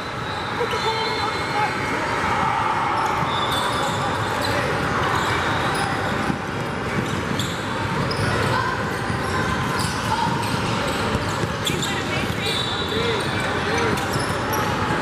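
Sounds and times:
shoe squeaks: 0.0s - 2.0s, 3.0s - 14.9s
crowd voices babbling: 0.0s - 15.0s.

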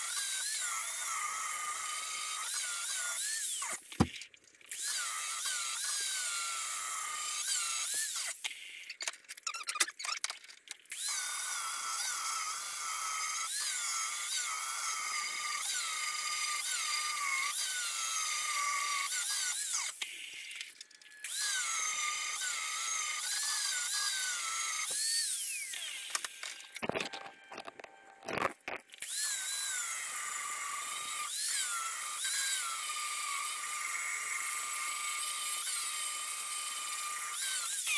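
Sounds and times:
angle grinder whining on steel: 11.0s - 37.9s.

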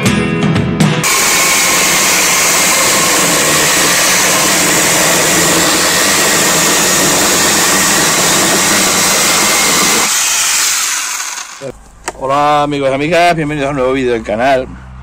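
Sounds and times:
chainsaw cutting log: 1.0s - 11.7s.

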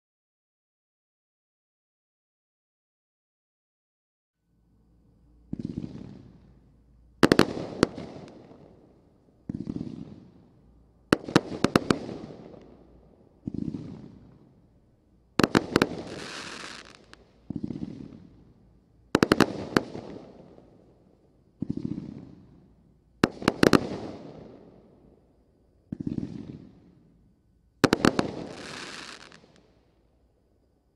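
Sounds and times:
firework hissing: 15.4s - 18.2s, 27.8s - 29.6s
firework shells bursting: 27.8s - 29.7s.

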